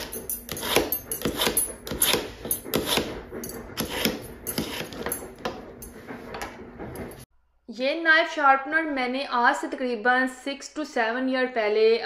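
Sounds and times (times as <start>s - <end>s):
knife rasping through sharpener: 0.0s - 5.4s.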